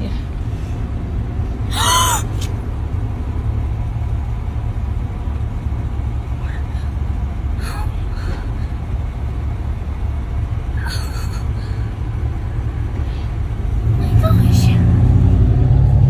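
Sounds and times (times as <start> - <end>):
car engine idling: 0.0 - 15.6
girl gasping and sobbing: 1.7 - 2.4, 7.6 - 8.9, 10.8 - 12.0.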